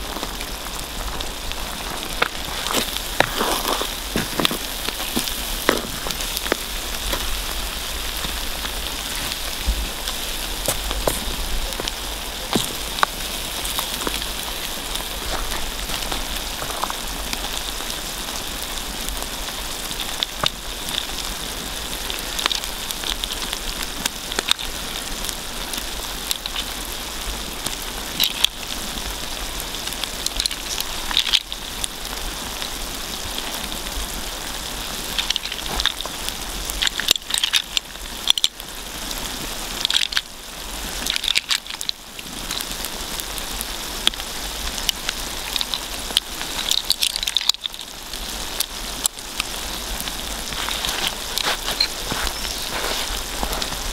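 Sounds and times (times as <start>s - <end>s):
rice simmering and sizzling: 0.0s - 53.9s
wood fire crackling: 0.0s - 53.9s.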